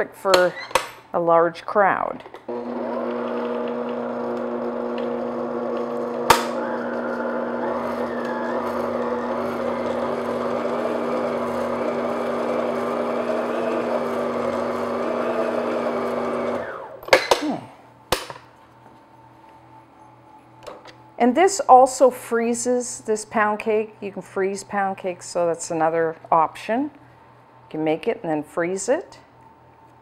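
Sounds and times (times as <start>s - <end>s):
stand mixer humming: 2.5s - 17.0s.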